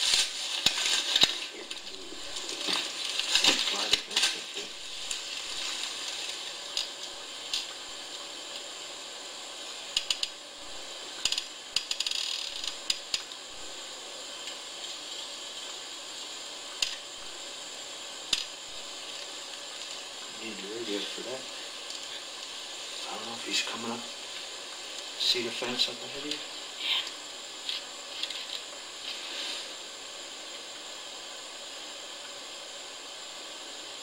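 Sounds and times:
rustling: 0.0 - 8.0
steady hiss: 0.0 - 34.0.

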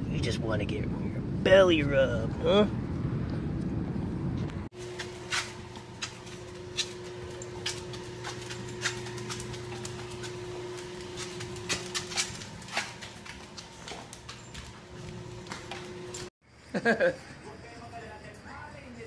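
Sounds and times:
steady low hum: 2.5 - 16.3.

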